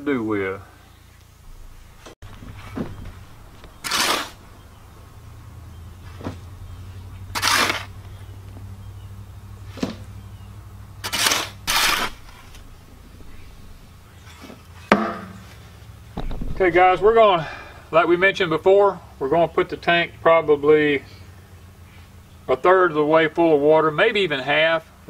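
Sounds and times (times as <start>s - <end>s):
low steady hum: 0.0s - 25.0s
shovel scraping soil: 2.3s - 4.7s, 6.0s - 8.6s, 9.6s - 10.2s, 11.0s - 13.6s.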